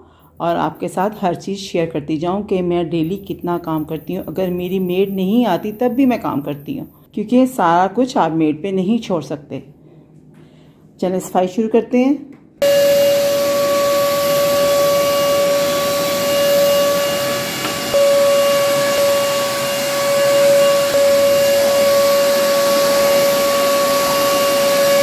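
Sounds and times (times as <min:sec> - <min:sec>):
vacuum cleaner running: 0:12.6 - 0:25.0.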